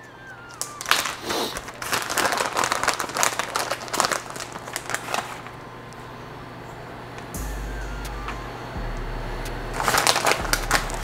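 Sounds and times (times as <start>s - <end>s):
plastic packet crinkling: 0.0s - 5.6s, 9.8s - 11.0s.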